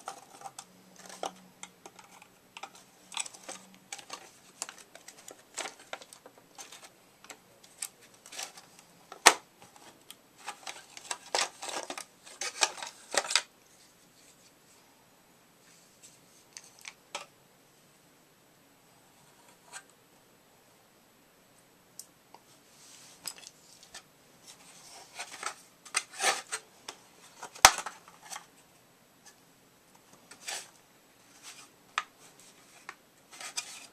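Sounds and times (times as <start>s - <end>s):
hard plastic clicking and rattling: 0.0s - 13.5s.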